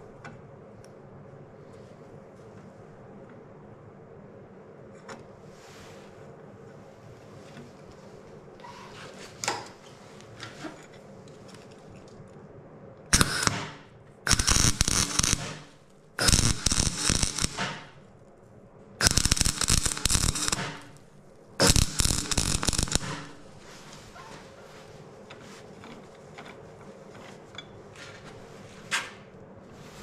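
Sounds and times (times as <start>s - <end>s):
welder arc crackling: 13.1s - 18.4s, 19.0s - 24.1s.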